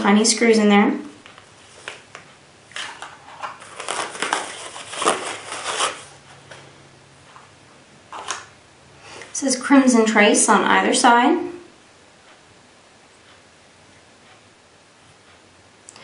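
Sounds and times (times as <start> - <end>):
packaging crinkling: 1.7 - 6.2.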